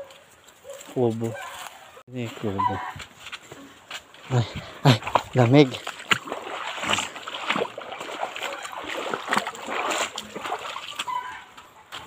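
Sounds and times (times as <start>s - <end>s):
feet splashing in stream: 3.2s - 12.0s
running water: 4.2s - 11.6s.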